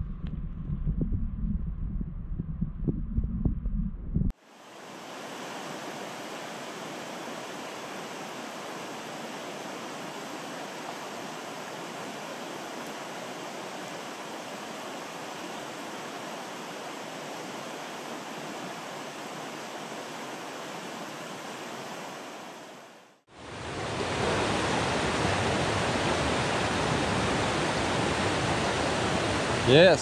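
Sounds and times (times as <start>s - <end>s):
river current rushing: 4.4s - 30.0s.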